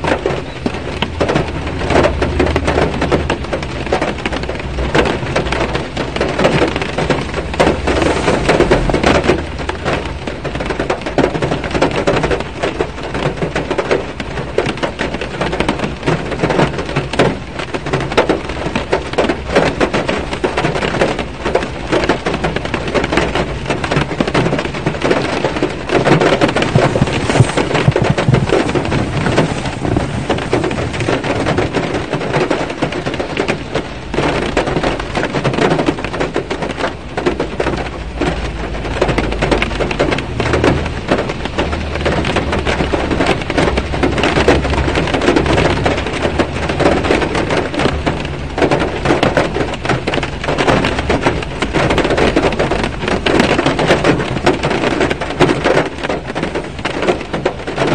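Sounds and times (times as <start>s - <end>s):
heavy rain drumming on car roof: 0.0s - 57.9s
low rumble: 6.1s - 11.0s, 25.8s - 32.1s.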